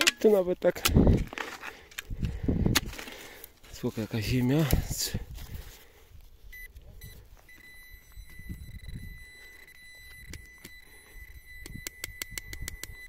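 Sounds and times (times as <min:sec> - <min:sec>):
metal detector beeping tone: 0:06.5 - 0:13.0.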